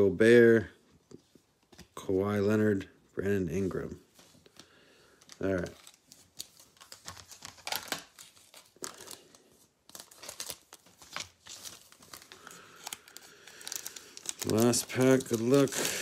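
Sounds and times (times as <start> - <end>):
foil wrapper crinkling: 5.1 - 16.0.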